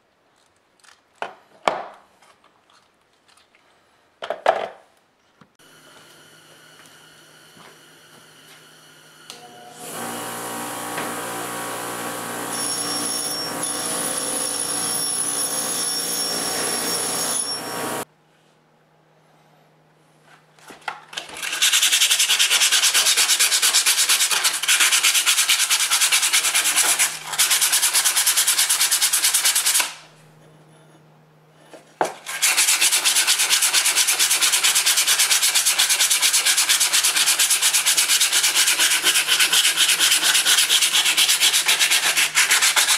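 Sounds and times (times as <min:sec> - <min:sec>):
bench grinder humming and whining: 0:05.6 - 0:18.0
sandpaper scratching on steel: 0:21.4 - 0:30.0, 0:32.2 - 0:42.9.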